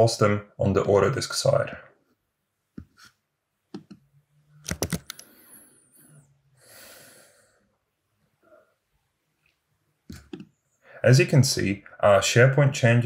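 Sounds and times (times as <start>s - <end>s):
computer clicks: 3.7s - 4.0s, 4.6s - 5.4s, 10.1s - 10.5s
soft breath-like hiss: 5.2s - 7.7s.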